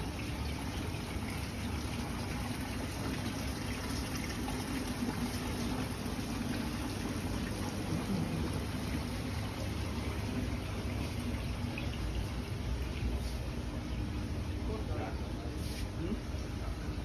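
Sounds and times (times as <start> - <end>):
fountain water splashing: 0.0 - 12.0.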